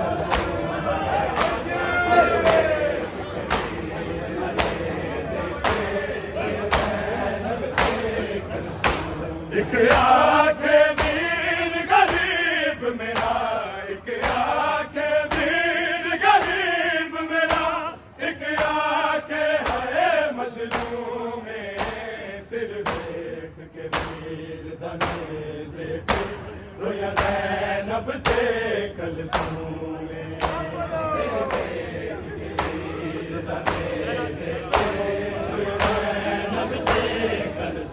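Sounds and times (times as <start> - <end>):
men chanting a lament in unison: 0.0 - 37.9
hand slaps on chest: 0.3 - 0.6, 3.5 - 3.8, 8.8 - 9.2, 13.2 - 13.4, 20.7 - 21.0, 21.8 - 22.0, 22.8 - 23.1, 23.9 - 24.2, 25.0 - 25.3, 29.3 - 29.6, 30.4 - 30.7, 35.8 - 36.1.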